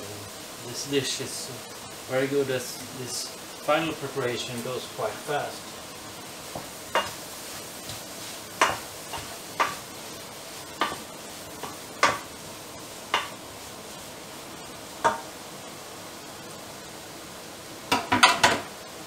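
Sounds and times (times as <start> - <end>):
food sizzling in frying pan: 0.0 - 19.0
wooden spatula stirring: 5.6 - 14.1
spatula knocking against pan: 6.6 - 7.2, 8.6 - 9.8, 10.8 - 11.0, 11.6 - 12.3, 13.1 - 13.4, 15.0 - 15.3.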